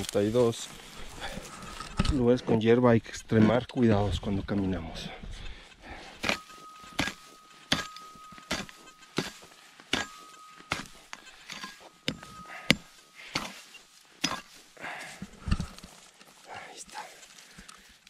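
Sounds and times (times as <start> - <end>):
footsteps through dry grass: 0.0 - 2.3, 4.6 - 18.0.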